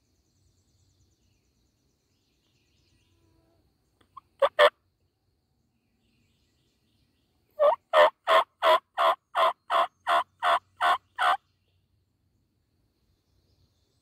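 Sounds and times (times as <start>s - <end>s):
turkey yelping: 4.4s - 4.7s, 7.6s - 11.4s.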